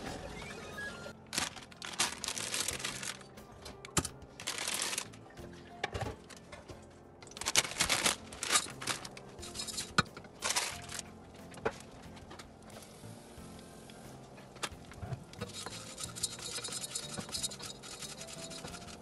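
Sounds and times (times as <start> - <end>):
quiet background music: 0.0 - 19.0
dry noodles crinkling and crunching: 1.2 - 5.3, 7.2 - 12.4.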